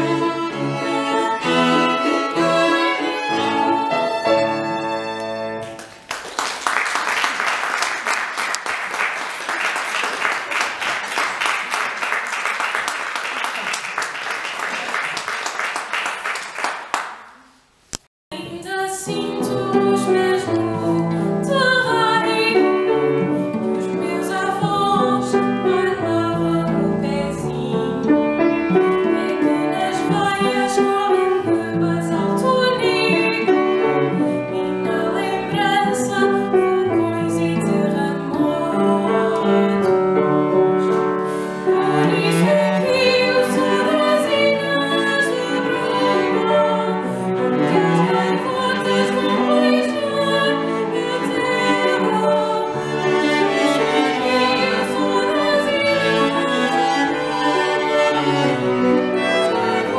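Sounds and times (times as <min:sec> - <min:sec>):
woman singing: 0:00.0 - 0:04.4, 0:18.3 - 0:23.0, 0:23.6 - 0:40.0, 0:41.8 - 0:58.5
piano and cello accompaniment: 0:00.0 - 0:06.0, 0:19.1 - 0:59.9
applause: 0:05.6 - 0:17.4.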